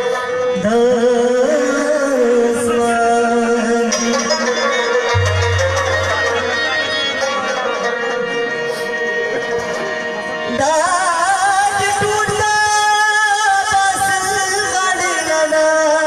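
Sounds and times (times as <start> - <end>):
rabab and harmonium music: 0.0 - 16.0
man singing long notes: 0.5 - 7.1.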